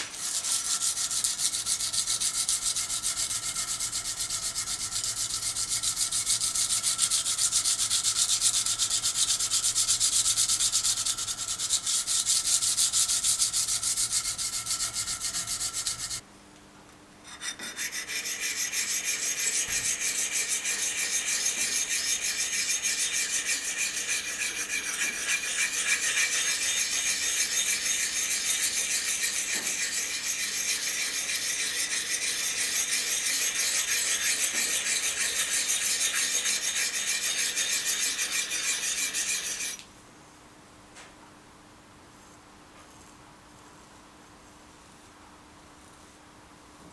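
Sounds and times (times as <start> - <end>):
blade being sanded: 0.0 - 16.2, 17.3 - 39.8
sharpening plate rasping on blade: 0.0 - 16.2, 17.2 - 39.8.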